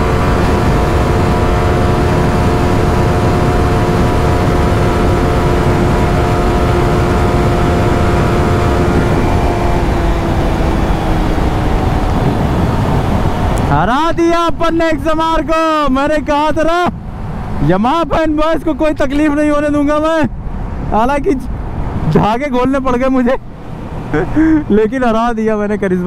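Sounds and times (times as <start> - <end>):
motorcycle engine revving high: 0.0 - 14.9, 23.0 - 25.1
wind rush: 0.0 - 15.3, 16.9 - 25.2.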